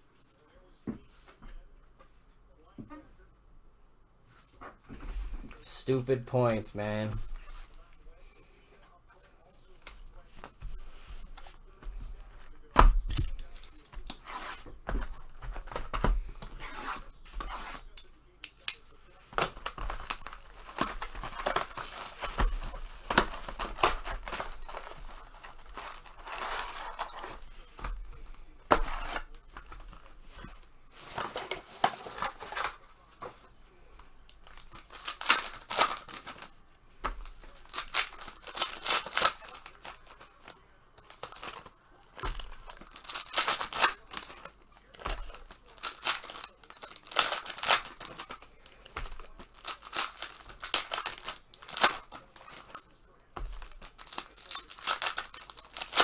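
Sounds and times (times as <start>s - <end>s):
plastic wrapping tearing and crinkling: 19.4s - 27.4s, 34.4s - 52.8s, 53.4s - 56.0s.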